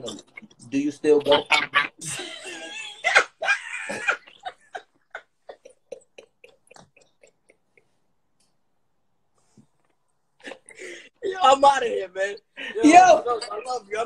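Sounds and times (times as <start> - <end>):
men laughing hard: 1.2 - 8.0.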